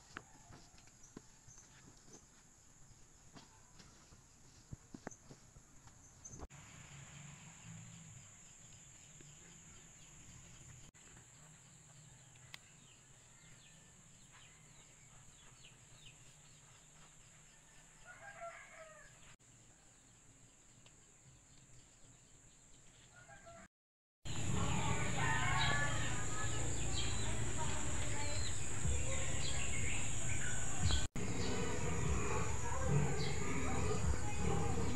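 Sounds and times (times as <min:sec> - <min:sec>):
outdoor ambience: 0:00.0 - 0:34.9
rooster crowing: 0:18.0 - 0:19.2, 0:23.1 - 0:23.7, 0:24.3 - 0:27.2.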